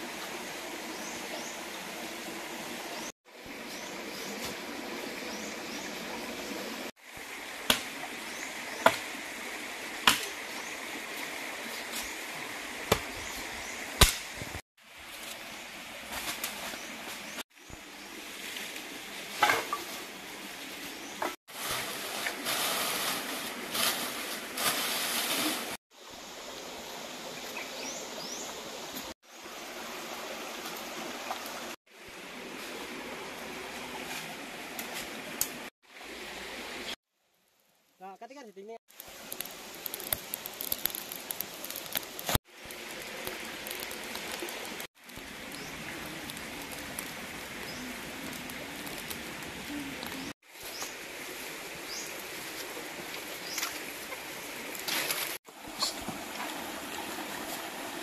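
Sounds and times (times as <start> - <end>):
creek babbling over stones: 0.0 - 16.1, 26.0 - 37.0, 38.9 - 58.0.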